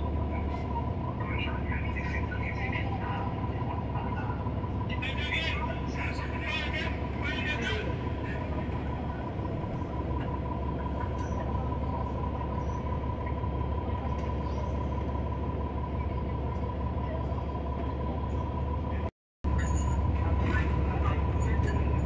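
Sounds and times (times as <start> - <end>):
diesel engine low rumble: 0.0 - 22.0.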